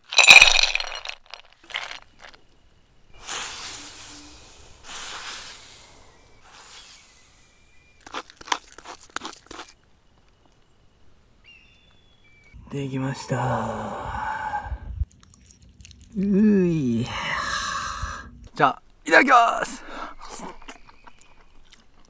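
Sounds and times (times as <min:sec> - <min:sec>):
food crunching: 0:00.0 - 0:02.6, 0:07.8 - 0:10.6, 0:15.0 - 0:16.3, 0:20.2 - 0:22.0.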